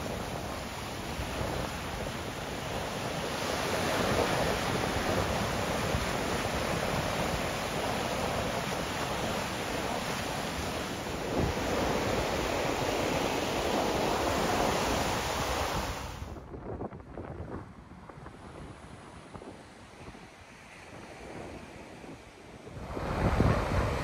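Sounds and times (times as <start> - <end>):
wind rumbling on microphone: 0.0 - 24.0.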